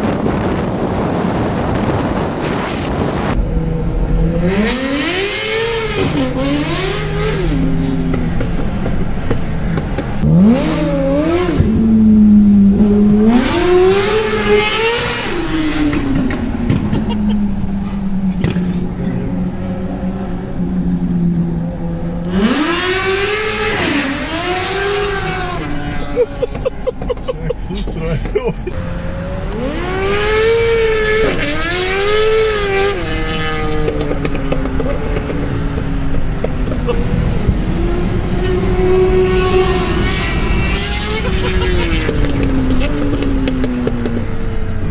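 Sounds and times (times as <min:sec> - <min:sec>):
motorcycle engine accelerating: 0:09.8 - 0:27.1, 0:28.7 - 0:44.9.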